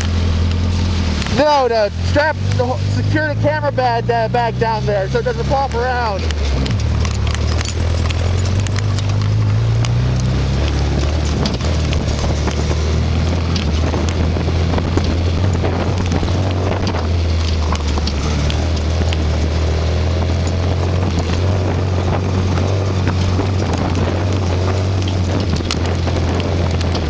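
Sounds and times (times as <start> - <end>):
vehicle engine running: 0.0 - 27.0
wind buffeting microphone: 1.2 - 27.0
small clicks and rattles: 5.8 - 27.0.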